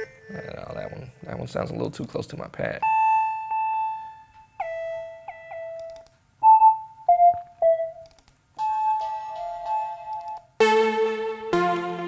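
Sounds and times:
soft synth lead notes: 0:07.1 - 0:12.0.

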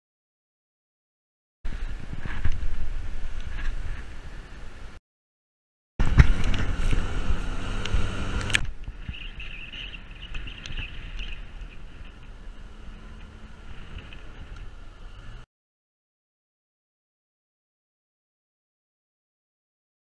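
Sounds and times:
wind across microphone: 0:01.7 - 0:05.0, 0:06.0 - 0:15.4
vehicle driving on dirt track: 0:06.0 - 0:15.5.

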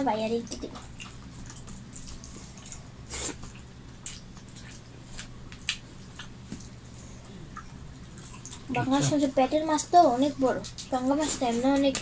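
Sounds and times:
mouth eating smacks: 0:00.8 - 0:08.9.

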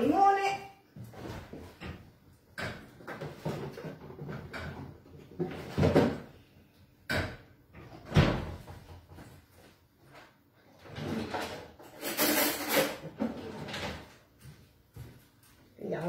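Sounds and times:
door opening and shutting: 0:07.1 - 0:08.7.

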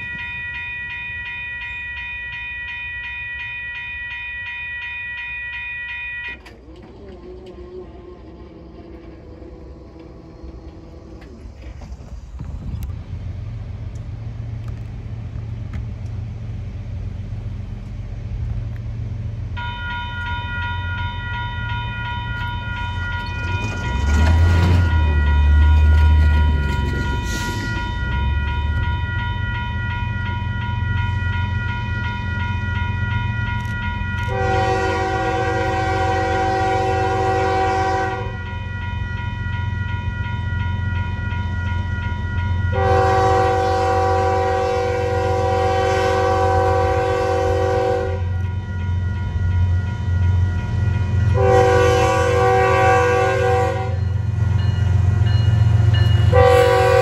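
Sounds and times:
train rumbling: 0:00.0 - 0:57.0
locomotive air horn blasts: 0:34.2 - 0:38.4, 0:42.7 - 0:48.4, 0:51.3 - 0:54.2, 0:56.3 - 0:57.0.

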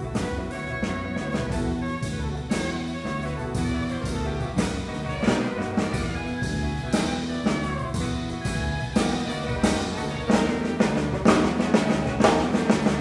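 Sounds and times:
drum kit hits: 0:00.0 - 0:13.0.

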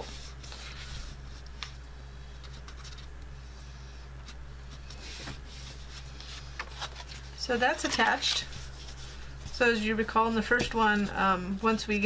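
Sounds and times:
steady low hum: 0:00.0 - 0:12.0
cardstock rustling and creasing: 0:04.8 - 0:09.0.

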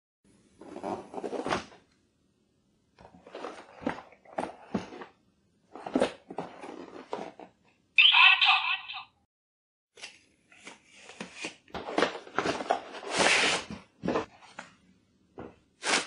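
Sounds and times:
cardboard box rubbing and scraping: 0:00.6 - 0:01.8, 0:05.8 - 0:07.5, 0:12.4 - 0:14.4.

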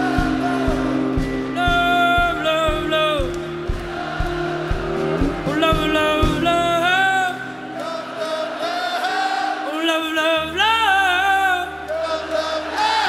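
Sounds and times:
kick drum beats: 0:00.0 - 0:06.9
voices singing in harmony: 0:00.0 - 0:13.0.

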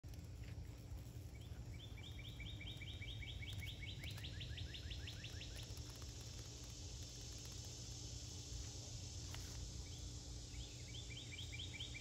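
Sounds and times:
low background rumble: 0:00.0 - 0:12.0
songbird trilling: 0:01.3 - 0:06.0, 0:09.8 - 0:12.0.

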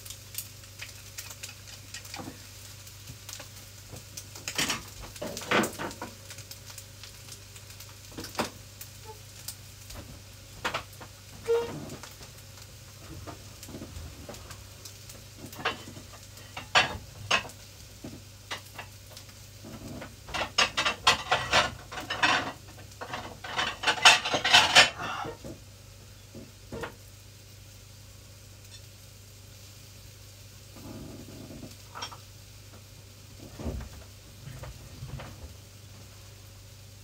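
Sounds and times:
metal utensil scraping a pan: 0:11.4 - 0:12.0, 0:20.0 - 0:25.5.

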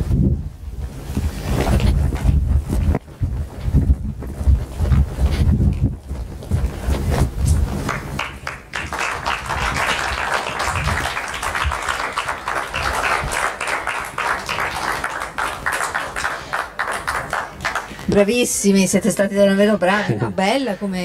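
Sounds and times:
audience applauding: 0:07.8 - 0:18.0.

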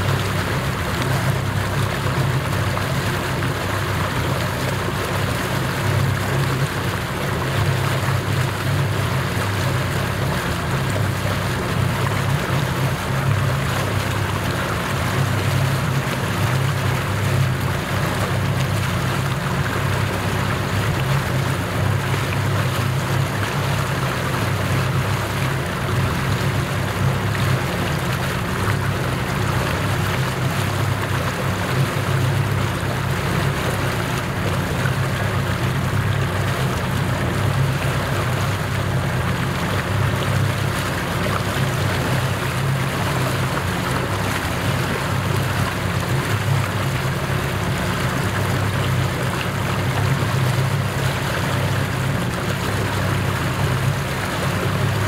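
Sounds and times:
motorboat engine hum: 0:00.0 - 0:55.0
water rushing along hull: 0:00.0 - 0:55.0.

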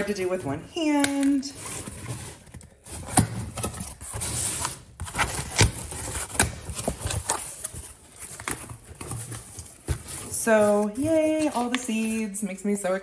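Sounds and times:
cardboard ripping and rustling: 0:01.5 - 0:12.2.

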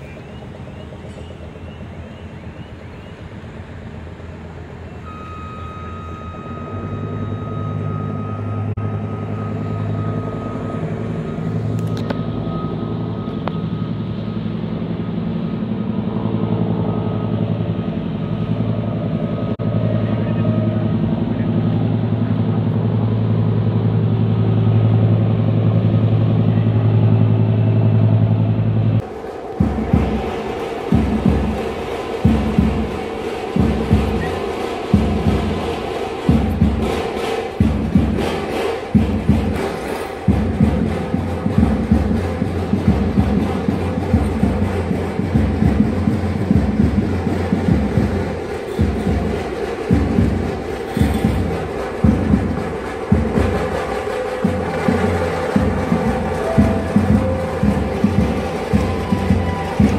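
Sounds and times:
engine running: 0:00.0 - 0:59.9
thin high tone: 0:05.0 - 0:21.5.

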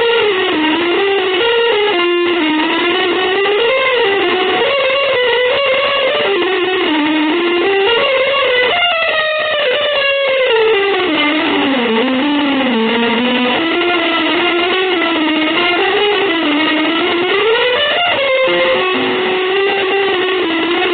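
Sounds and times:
gliding sustained melodic line: 0:14.7 - 0:20.7.

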